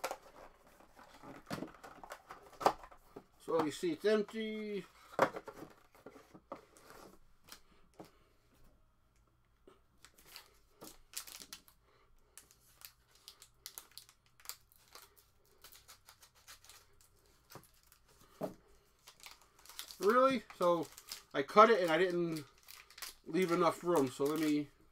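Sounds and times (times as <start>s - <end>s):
wrapper crinkling: 10.0s - 11.8s, 12.4s - 18.1s, 18.9s - 24.7s.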